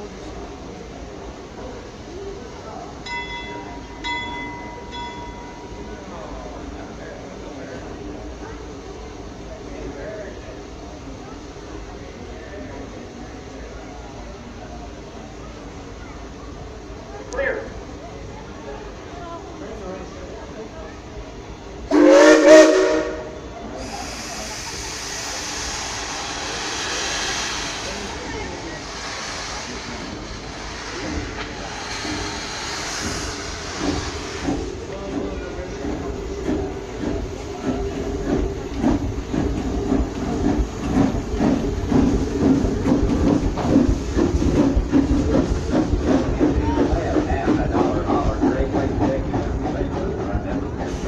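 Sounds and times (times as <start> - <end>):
steam locomotive whistle: 21.9 - 27.8
steam hissing: 21.9 - 49.5, 50.5 - 51.0.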